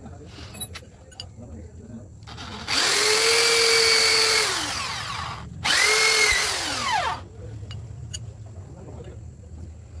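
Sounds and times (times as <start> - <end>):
electric drill whining: 2.2 - 7.2.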